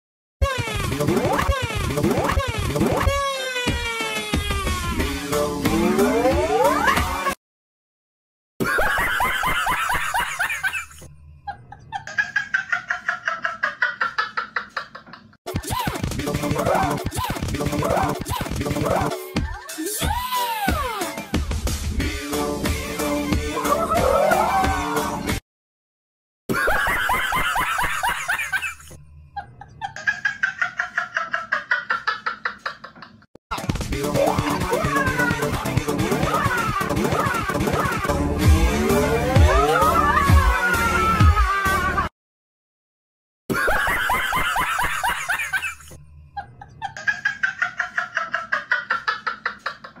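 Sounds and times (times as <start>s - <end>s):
person laughing: 8.6s - 20.4s, 23.6s - 24.5s, 26.5s - 33.3s, 34.1s - 42.1s, 43.5s - 50.0s.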